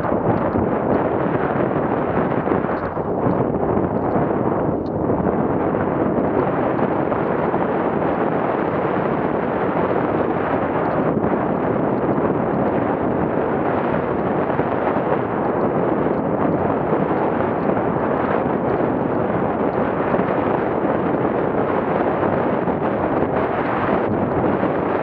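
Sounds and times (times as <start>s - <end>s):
wind buffeting microphone: 0.0s - 25.0s.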